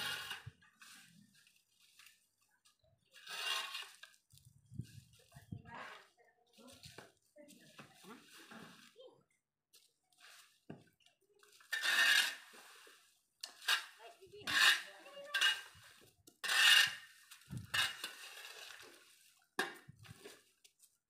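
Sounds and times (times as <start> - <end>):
leaves scraped off concrete: 0.0 - 2.3, 3.1 - 7.0, 11.4 - 20.6.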